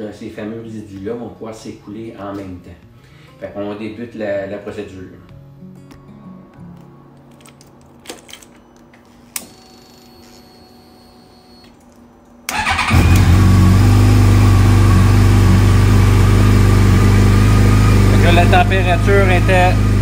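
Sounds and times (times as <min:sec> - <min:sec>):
starter motor cranking: 0:12.5 - 0:14.6
motorcycle engine idling: 0:12.5 - 0:20.0.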